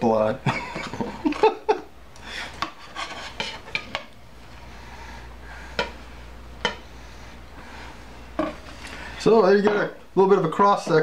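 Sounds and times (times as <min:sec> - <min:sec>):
knife scraping plate: 0:02.6 - 0:04.1
knife tapping plate: 0:05.8 - 0:06.0.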